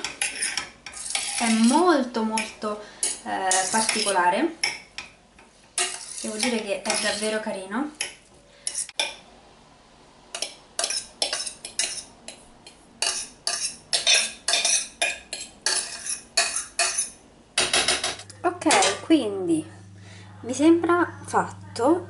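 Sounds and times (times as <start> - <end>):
metal spoon scraping saucepan: 0.0 - 4.2, 5.8 - 9.1, 10.4 - 17.2.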